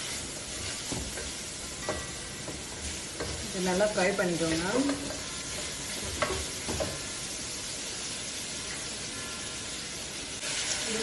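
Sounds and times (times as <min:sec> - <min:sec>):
onions sizzling in hot oil: 0:00.0 - 0:11.0
wooden spatula knocking pot: 0:00.9 - 0:07.1.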